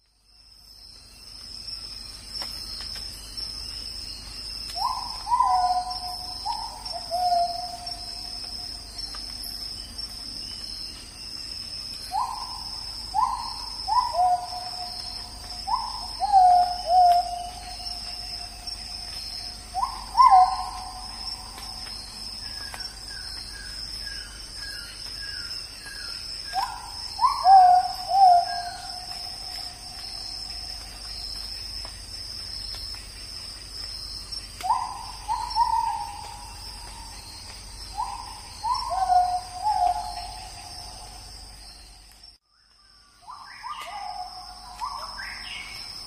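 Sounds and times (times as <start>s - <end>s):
high insect drone: 0.0s - 46.0s
bird hooting calls: 4.8s - 7.9s, 12.1s - 18.0s, 19.4s - 21.8s, 26.6s - 30.8s, 34.6s - 37.1s, 37.9s - 41.2s.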